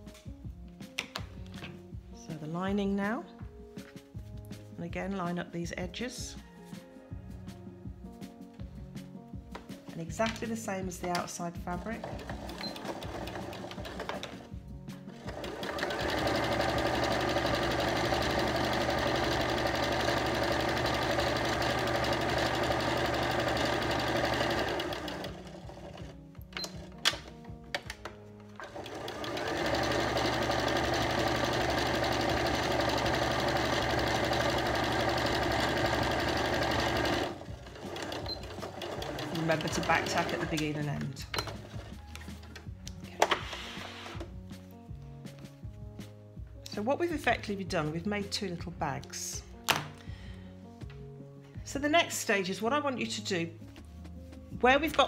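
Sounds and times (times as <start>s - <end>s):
sewing machine stitching: 11.8s - 14.5s, 15.1s - 26.9s, 28.6s - 42.0s.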